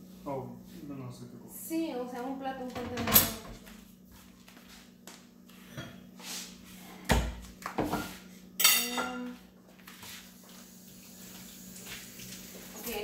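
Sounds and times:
dish clinking: 8.6s - 9.3s.

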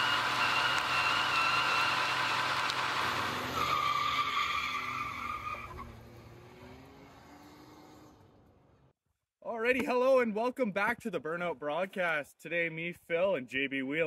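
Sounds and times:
tyre squealing on pavement: 0.0s - 6.2s.

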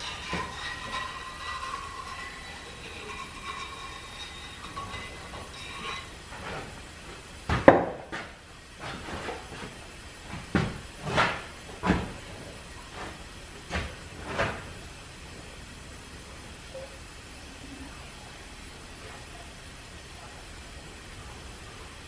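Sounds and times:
metal clanks and knocks: 0.0s - 6.9s.

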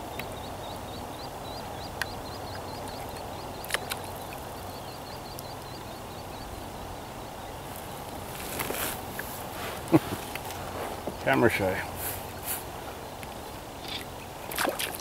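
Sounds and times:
bird chirping: 0.0s - 9.3s.

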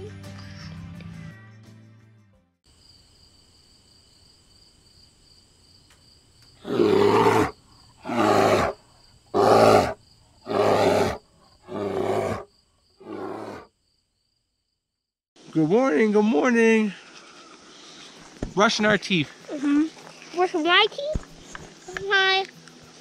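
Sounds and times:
rough roaring grunts: 6.6s - 13.7s.

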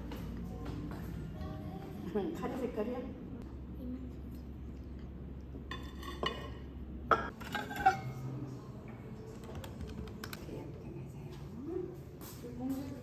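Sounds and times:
ceramic bowls clinking: 5.6s - 8.5s.

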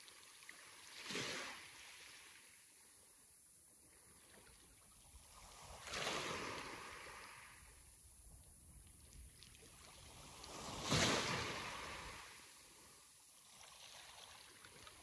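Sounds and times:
sea waves breaking on shore: 0.0s - 2.7s, 5.1s - 7.8s, 9.5s - 15.0s.

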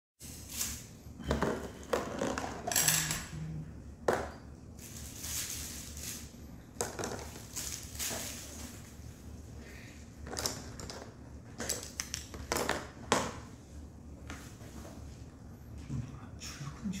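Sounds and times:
objects rustling and clunking: 0.2s - 3.4s, 4.0s - 16.0s.

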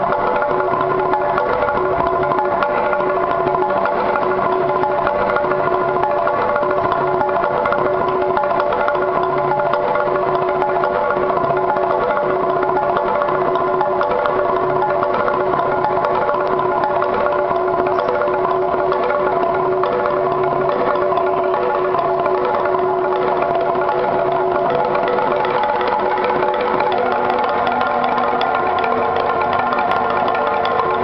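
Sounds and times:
wooden planks beaten with sticks: 0.0s - 31.0s.

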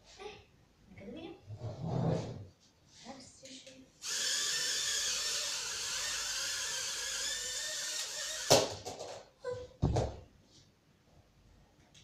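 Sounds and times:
toy drone propellers whining: 4.0s - 8.7s.

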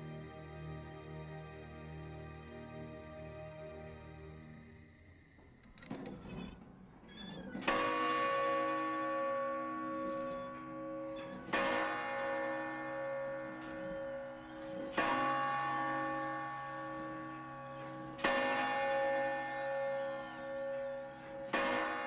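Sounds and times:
large bell ringing: 7.6s - 22.0s.

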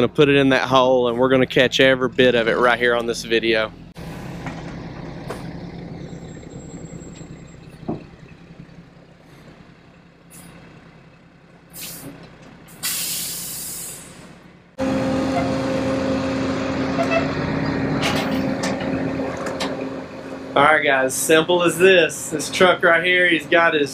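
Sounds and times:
engine drone with whine: 0.0s - 23.9s
truck engine idling: 0.0s - 23.9s
air hissing: 11.7s - 14.4s.

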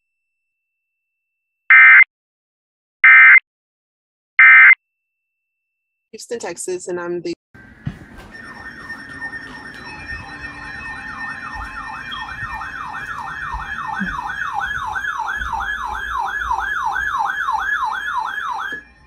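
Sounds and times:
falling siren-like alarm tone: 7.6s - 19.0s
higher warbling alarm: 7.6s - 19.0s.

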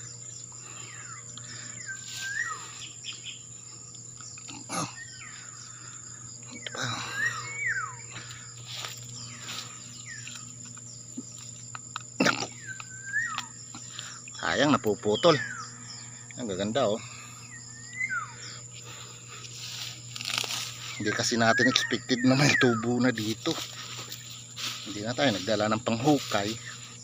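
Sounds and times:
high insect drone: 0.0s - 27.0s
bird whistling calls: 1.8s - 3.4s, 7.1s - 8.0s, 12.6s - 13.6s, 17.6s - 18.6s
hands rustling in grass: 8.2s - 11.6s, 18.8s - 21.8s, 23.1s - 27.0s.

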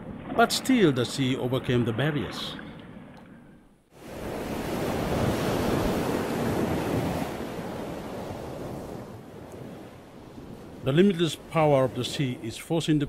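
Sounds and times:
waves breaking against rocks: 4.0s - 12.4s.

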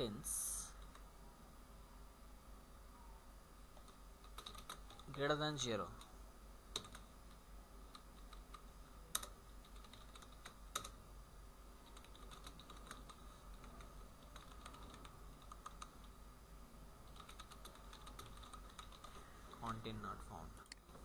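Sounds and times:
low steady hum: 0.0s - 21.0s
typing on computer keyboard: 3.8s - 5.1s, 6.7s - 7.1s, 7.9s - 11.0s, 11.8s - 16.1s, 17.1s - 19.7s.

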